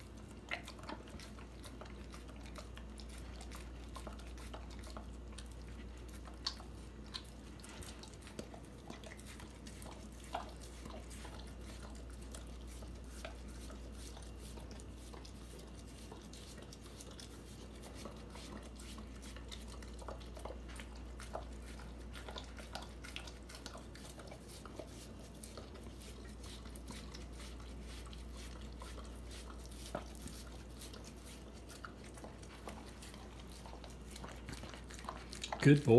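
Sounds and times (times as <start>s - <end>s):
dog chewing watermelon: 0.0s - 35.9s.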